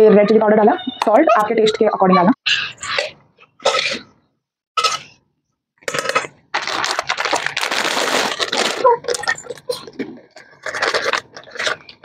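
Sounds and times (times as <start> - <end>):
cabbage crunching and rustling: 5.9 - 9.5, 10.6 - 11.9.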